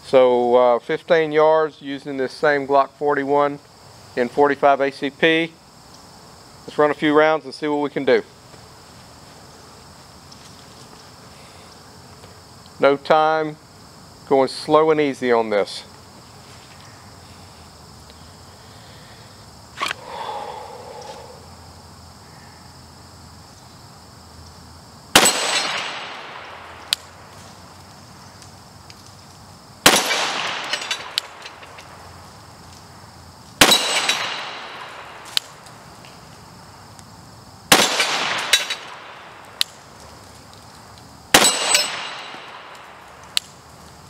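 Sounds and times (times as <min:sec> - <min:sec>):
crickets buzzing: 0:00.0 - 0:44.0
pistol shots: 0:25.1 - 0:27.0, 0:29.8 - 0:31.6, 0:33.6 - 0:35.5, 0:37.7 - 0:39.3, 0:41.3 - 0:43.1
steel target ringing clang: 0:33.6 - 0:34.7, 0:41.4 - 0:42.5.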